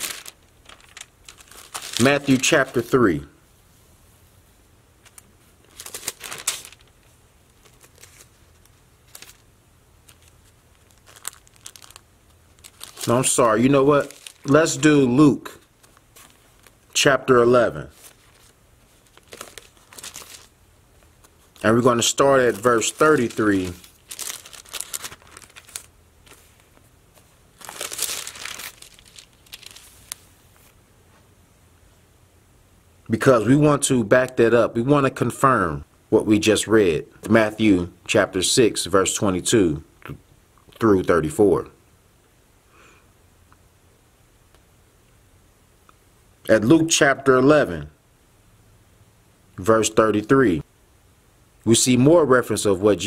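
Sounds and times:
pages being leafed through: 0.0s - 2.8s, 5.0s - 14.8s, 15.8s - 16.9s, 17.9s - 30.8s.

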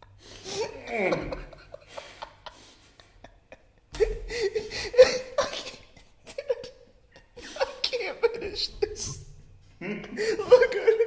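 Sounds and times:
men laughing: 0.3s - 11.0s.

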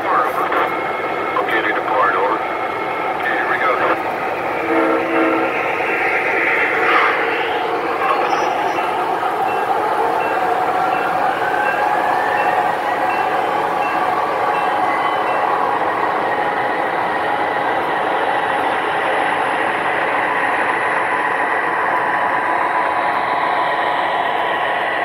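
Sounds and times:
model train wheels rumbling on rails: 0.0s - 25.0s
model train motor whine: 4.4s - 9.6s.

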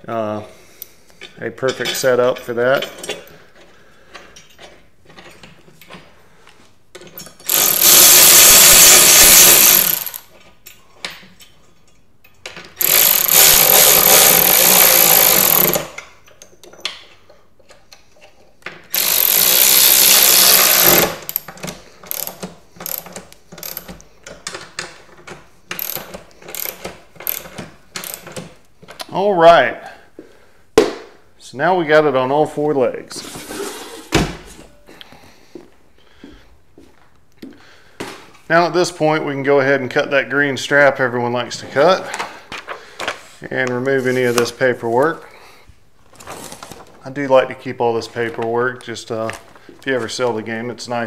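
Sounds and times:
power drill driving bolts: 7.4s - 10.3s, 12.8s - 16.1s, 18.9s - 24.6s, 25.7s - 28.5s.

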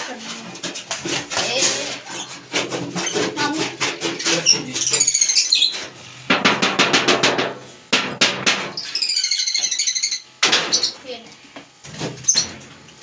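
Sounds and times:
small birds chirping: 4.3s - 5.9s, 8.8s - 11.1s.

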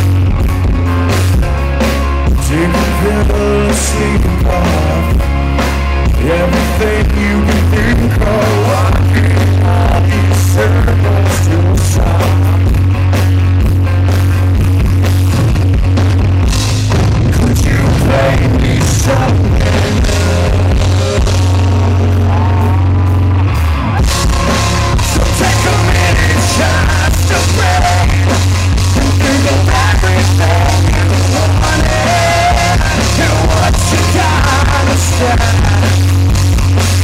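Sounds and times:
electric guitar: 0.0s - 37.0s
live rock band playing: 0.0s - 37.0s
man singing: 2.3s - 5.3s, 6.0s - 12.7s, 17.3s - 22.9s, 25.0s - 36.1s.

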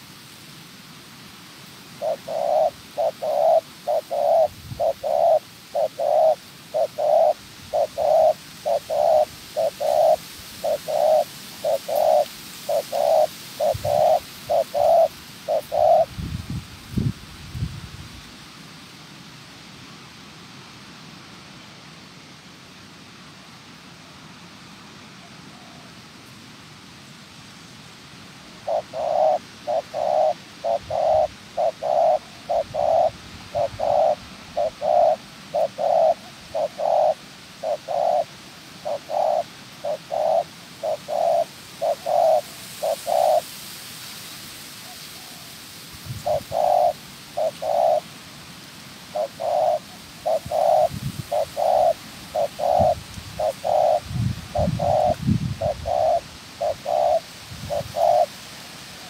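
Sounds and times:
dove cooing: 2.0s - 16.2s, 28.6s - 43.5s, 46.1s - 48.1s, 49.1s - 58.4s.

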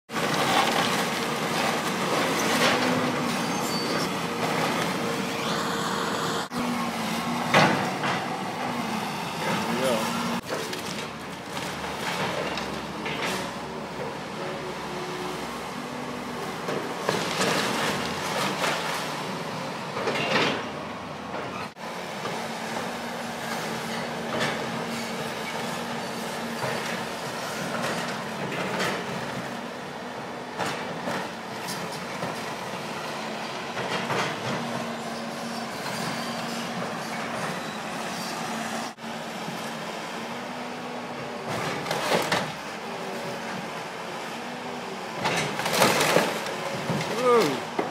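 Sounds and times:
excavator diesel engine under load: 0.1s - 47.9s
debris crunching and clattering: 45.2s - 47.2s
loud debris crashes: 45.4s - 47.4s.

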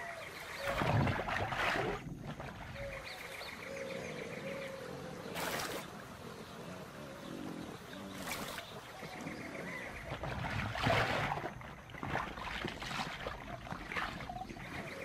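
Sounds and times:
water splashing and sloshing: 0.0s - 3.9s, 5.2s - 15.0s.

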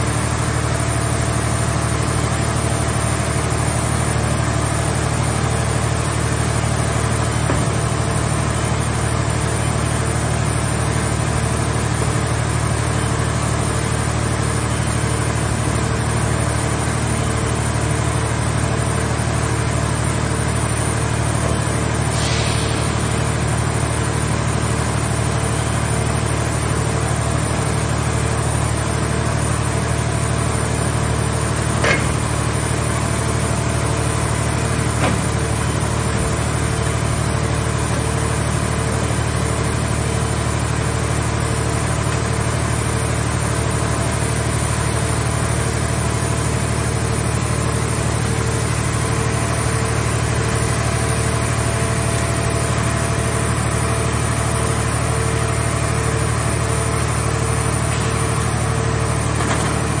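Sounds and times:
hydraulic power unit humming: 0.0s - 60.0s
metal clanks: 31.8s - 32.3s.

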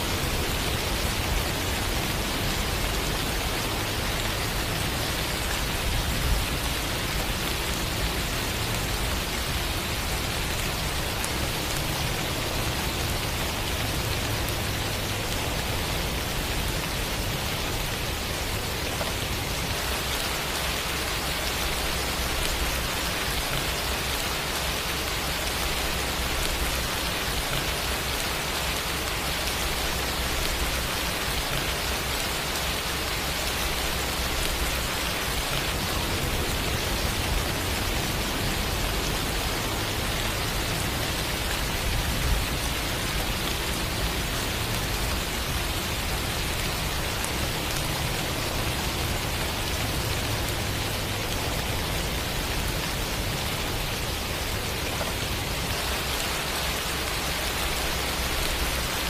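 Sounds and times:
rain pattering: 0.0s - 59.0s.

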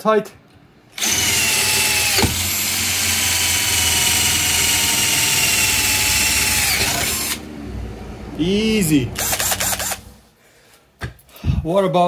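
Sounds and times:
drill click: 1.0s - 7.4s, 9.2s - 10.1s
drill motor whine: 1.0s - 7.5s, 9.2s - 10.0s.

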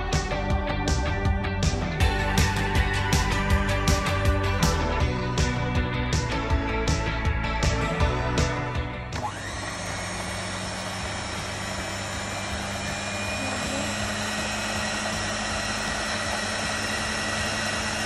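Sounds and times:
stand mixer running: 8.7s - 18.0s.

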